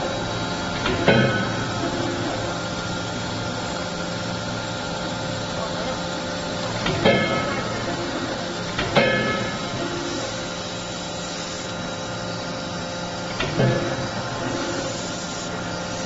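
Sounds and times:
steady machine hum: 0.0 - 16.0
forging hammer bang with metallic ringing: 8.8 - 10.1.

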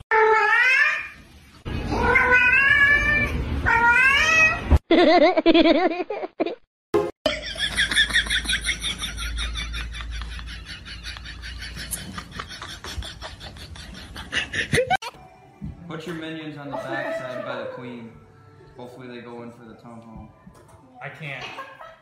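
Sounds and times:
cat meowing: 1.9 - 4.7.

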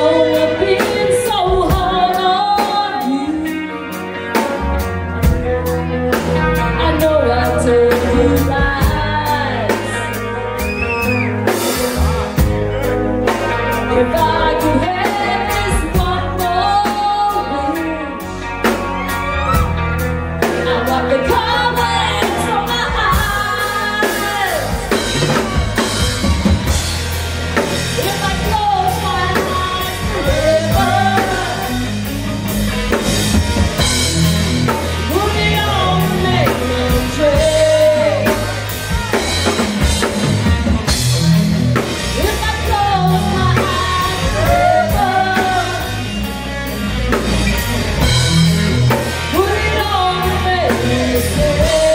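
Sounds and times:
man singing: 0.0 - 3.9, 28.0 - 31.9, 35.1 - 39.2, 42.2 - 46.1, 49.3 - 51.9
woman singing: 0.0 - 3.9, 6.6 - 10.1, 13.8 - 18.5, 20.4 - 25.0, 27.9 - 31.9, 35.0 - 38.7, 42.1 - 46.1, 49.3 - 51.9
rock band playing: 0.0 - 51.9.

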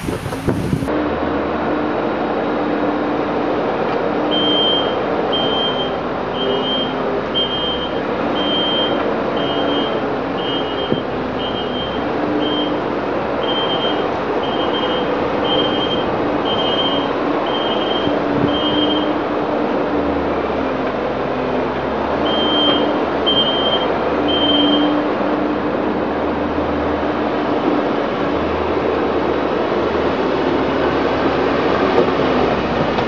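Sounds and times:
loader engine running: 0.0 - 33.0
reversing alarm beeping: 4.3 - 19.2, 22.2 - 25.1.

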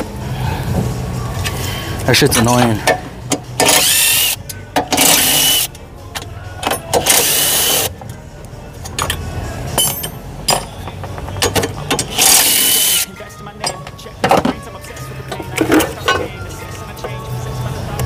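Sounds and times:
power tool hissing and whining: 12.2 - 13.1.

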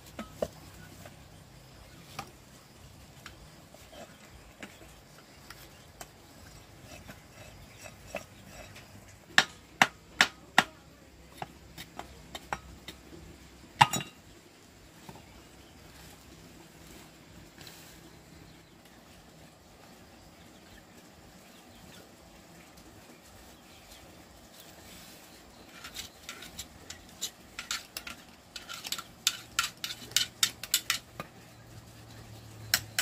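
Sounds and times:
hard objects clinking: 25.7 - 31.2.

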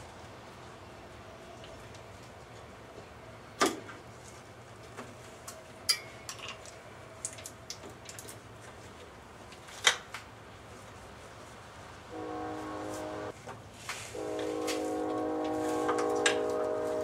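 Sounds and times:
clinks of tools and small parts: 5.9 - 7.4.

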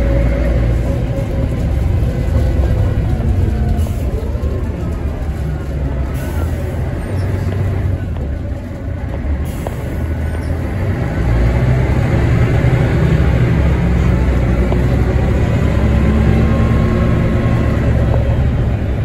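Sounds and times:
bus engine drone: 0.0 - 19.0
road noise: 0.0 - 19.0.

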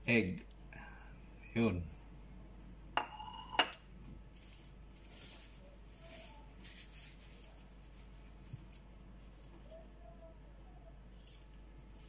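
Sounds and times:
faint rustles: 4.1 - 10.0.

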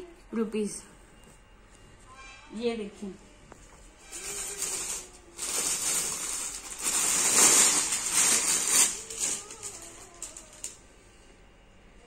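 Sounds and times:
fabric rustling: 4.0 - 10.7.

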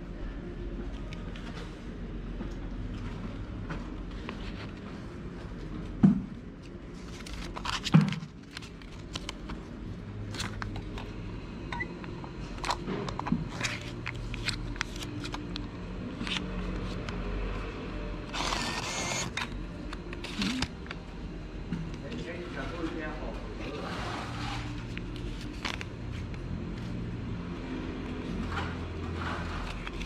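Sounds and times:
bill acceptor whirring: 18.3 - 19.5.

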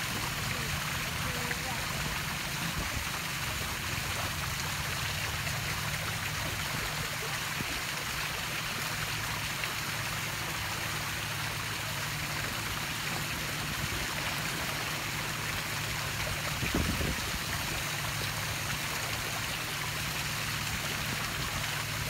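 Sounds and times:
water rushing: 0.0 - 22.0.

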